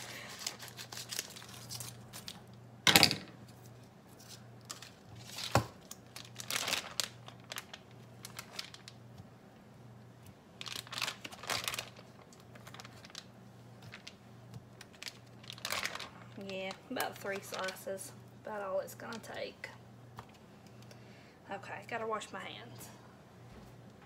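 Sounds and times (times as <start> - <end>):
plastic package crinkling: 0.0 - 2.6, 4.1 - 9.0, 10.6 - 17.8.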